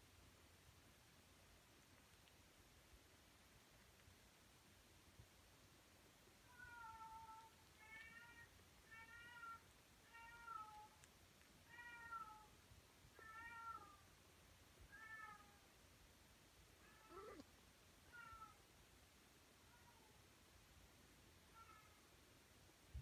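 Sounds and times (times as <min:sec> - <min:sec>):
cat meowing: 0:06.5 - 0:11.0, 0:11.7 - 0:12.5, 0:13.2 - 0:14.0, 0:14.9 - 0:15.6, 0:16.8 - 0:17.5, 0:18.1 - 0:18.6, 0:21.5 - 0:22.0.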